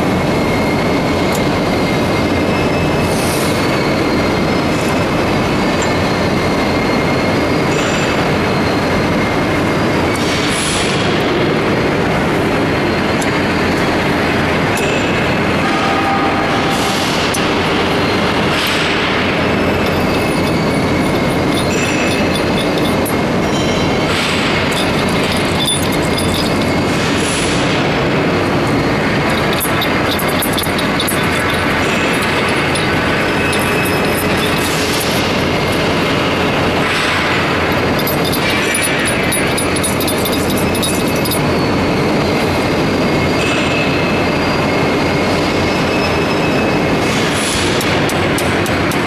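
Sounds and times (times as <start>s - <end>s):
factory machinery noise: 0.0s - 49.0s.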